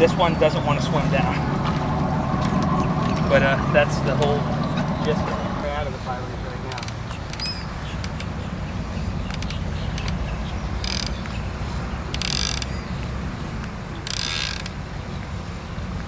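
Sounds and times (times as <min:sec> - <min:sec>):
steady low rumble: 0:00.0 - 0:07.1
fishing reel clicker ratcheting: 0:10.8 - 0:11.3, 0:12.1 - 0:12.7, 0:14.0 - 0:14.7.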